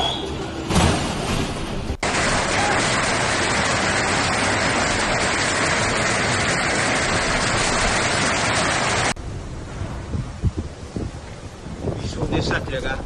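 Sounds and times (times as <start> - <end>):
heavy hail clattering: 0.7 - 9.2.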